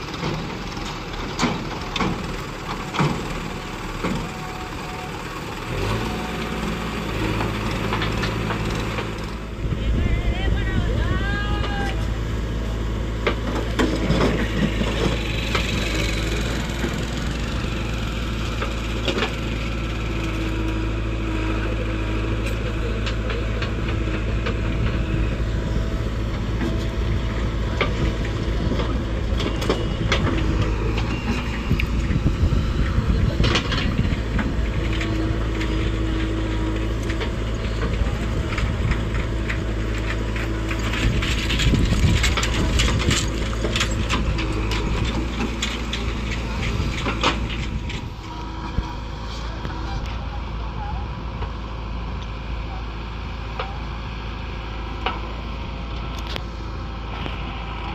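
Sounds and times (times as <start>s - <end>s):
diesel engine running: 0.0s - 57.9s.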